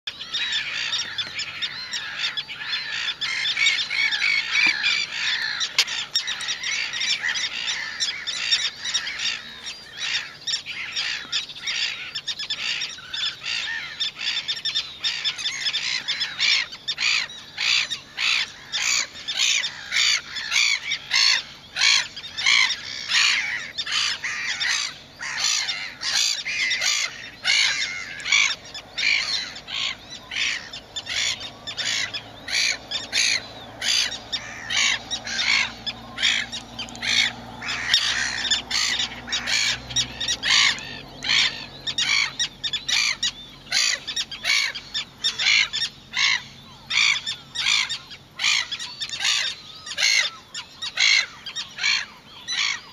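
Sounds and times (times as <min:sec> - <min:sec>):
gulls calling: 0:00.0 - 0:52.9.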